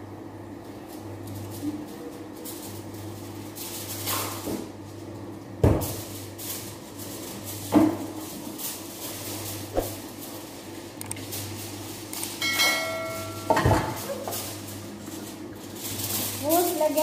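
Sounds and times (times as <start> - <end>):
sharp knocks in kitchen: 5.6 - 5.9.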